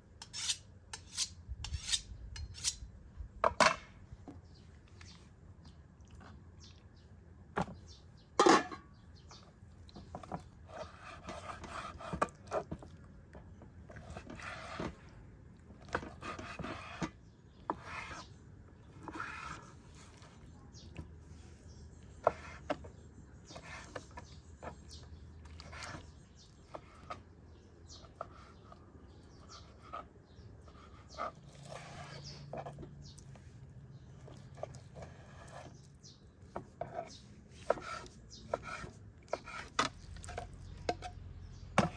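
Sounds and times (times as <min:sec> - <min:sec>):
metal lid clanking: 0:08.4 - 0:08.9
meat scraping and rustling: 0:09.9 - 0:27.3, 0:28.0 - 0:40.9.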